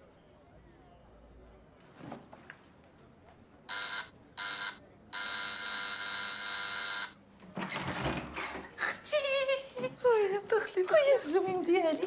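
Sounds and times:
doorbell buzzer: 3.7s - 7.2s.

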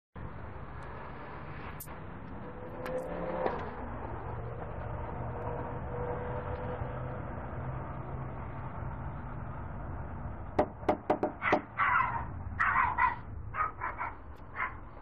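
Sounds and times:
knocks on a door: 10.6s - 11.7s
dog barking: 11.3s - 15.0s.

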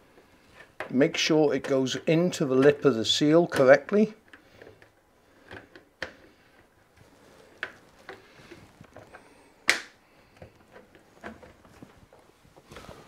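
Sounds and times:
hands clicking and knocking on rubber seal: 7.6s - 12.0s.

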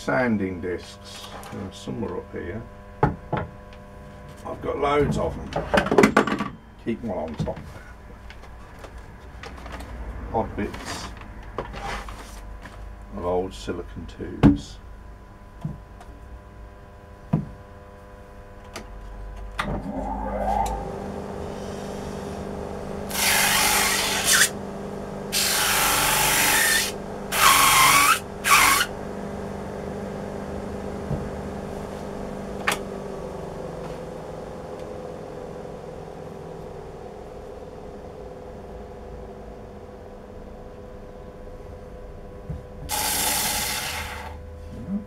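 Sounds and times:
disc sander motor whine: 19.4s - 41.1s, 42.9s - 44.6s.

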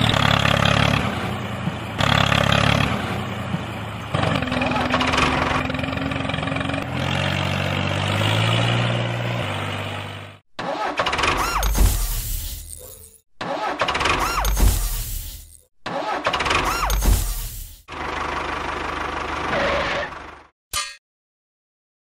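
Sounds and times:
engine drone: 0.0s - 10.4s.

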